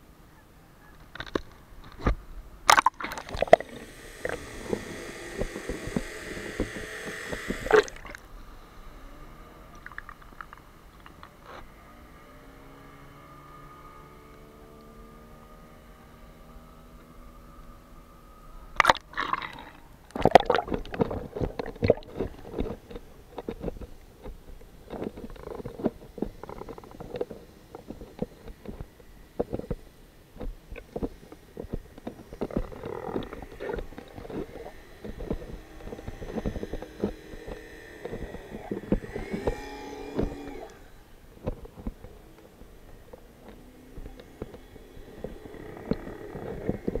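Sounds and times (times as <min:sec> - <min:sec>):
faint wavering tones: 0:00.0 - 0:18.8, 0:26.4 - 0:47.0
underwater gurgling and crackling: 0:01.0 - 0:08.4, 0:09.7 - 0:11.6, 0:18.8 - 0:47.0.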